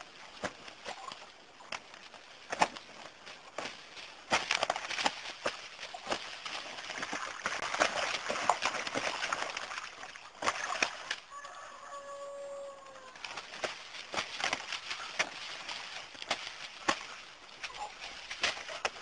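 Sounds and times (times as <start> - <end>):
wing flapping and scuffling: 0.0 - 11.6, 12.8 - 19.0
rooster crowing: 11.3 - 13.2.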